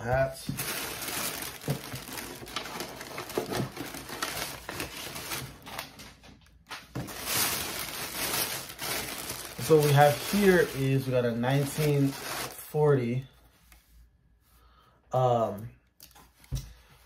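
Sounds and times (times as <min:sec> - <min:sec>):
plastic bag crinkling: 0:00.1 - 0:12.8.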